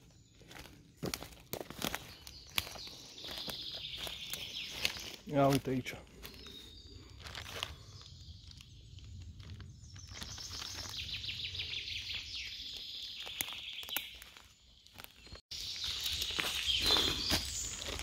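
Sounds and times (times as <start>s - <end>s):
footsteps in leaf litter: 0.0s - 18.0s
rustling leaves: 0.4s - 18.0s.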